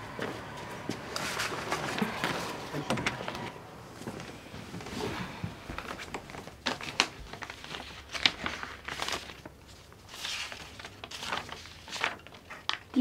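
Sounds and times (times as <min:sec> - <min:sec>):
paper envelope crinkling: 0:01.0 - 0:03.5, 0:05.7 - 0:13.0.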